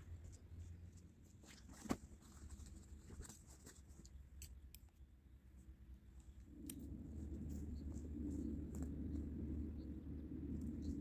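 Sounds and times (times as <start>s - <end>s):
low rumble: 6.3s - 11.0s.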